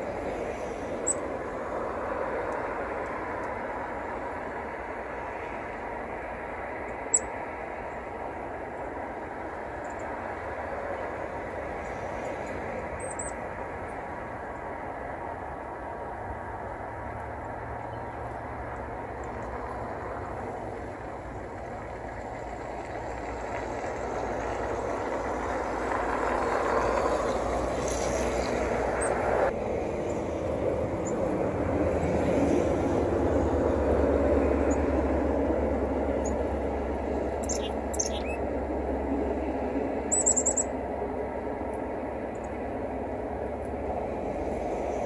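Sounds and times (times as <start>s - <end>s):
distant vehicle rumble: 0.0s - 45.0s
high bird chirps: 37.4s - 38.4s, 40.1s - 40.7s.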